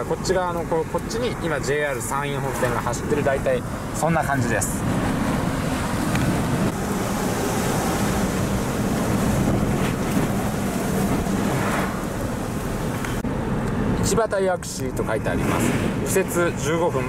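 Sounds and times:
low engine hum: 0.0s - 17.0s
road noise: 0.0s - 17.0s
wind rush: 2.0s - 14.0s.

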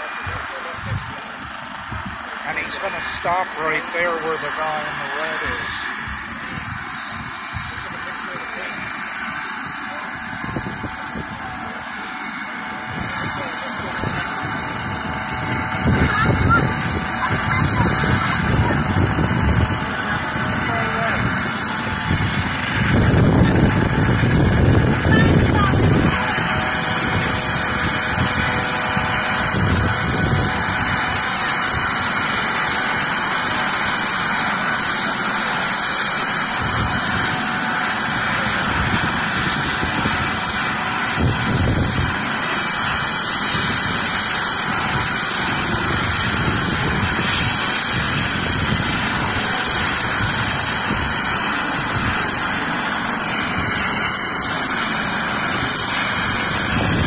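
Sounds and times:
helicopter rotor noise: 0.0s - 57.0s
helicopter turbine whine: 0.0s - 57.0s.

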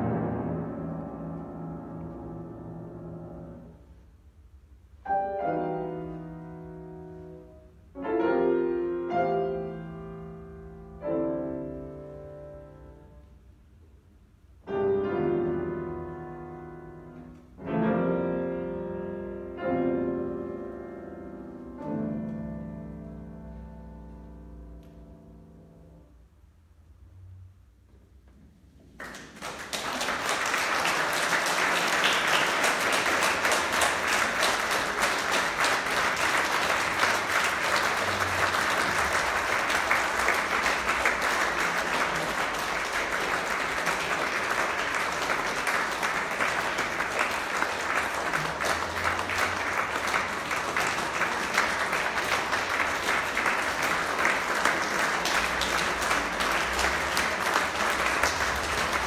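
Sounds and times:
audience applauding: 29.0s - 59.0s.

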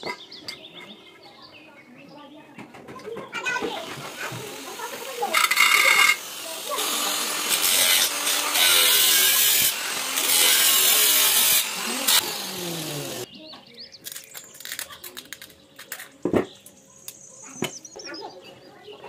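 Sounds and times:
angle grinder cutting metal: 3.9s - 13.3s
tin snips cutting sheet metal: 6.8s - 12.3s.

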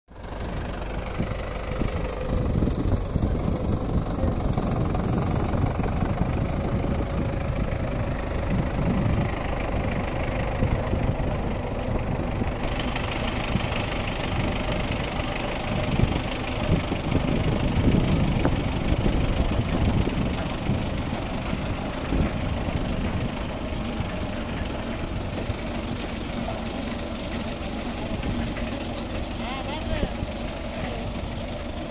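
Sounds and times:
tractor diesel engine running: 0.1s - 31.9s.

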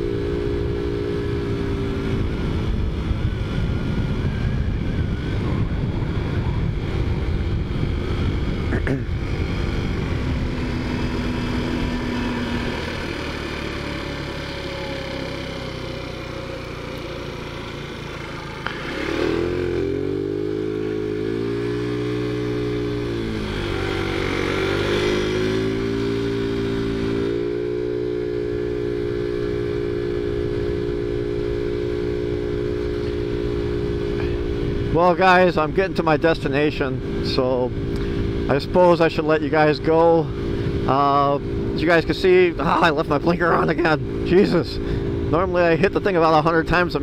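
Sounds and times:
scooter engine revving: 0.0s - 35.0s, 39.8s - 47.0s
wind noise: 1.2s - 12.7s.

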